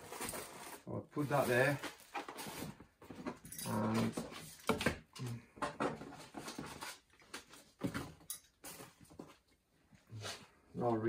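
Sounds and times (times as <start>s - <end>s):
plastic and paper crinkling: 0.0s - 4.3s.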